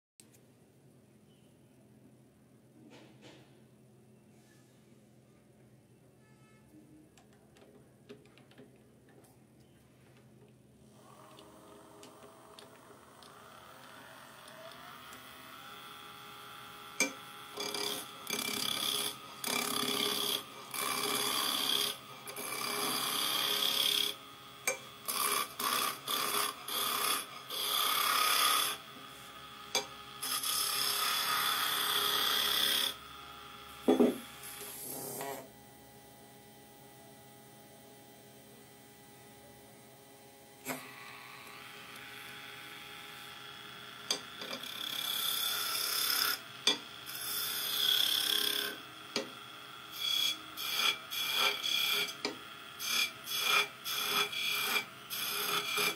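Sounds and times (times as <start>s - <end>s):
wood lathe humming: 10.9s - 55.9s
chisel cutting spinning wood: 11.0s - 35.4s, 40.6s - 55.9s.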